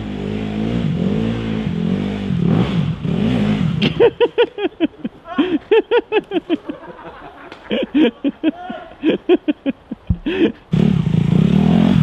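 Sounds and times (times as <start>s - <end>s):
dirt bike engine revving: 0.0s - 4.1s, 10.7s - 12.0s
person laughing: 3.8s - 10.6s.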